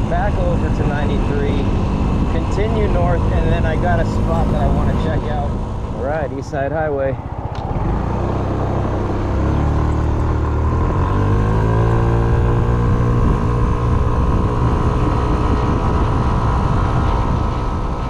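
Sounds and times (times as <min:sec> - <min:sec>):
wind noise: 0:00.0 - 0:18.0
scooter engine pulling away: 0:07.2 - 0:18.0.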